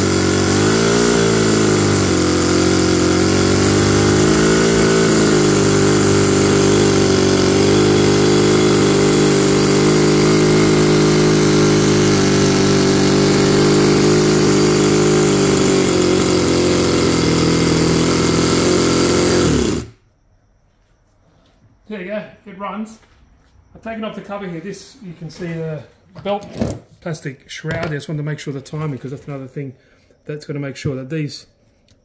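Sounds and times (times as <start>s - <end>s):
miniature engine running: 0.0s - 20.0s.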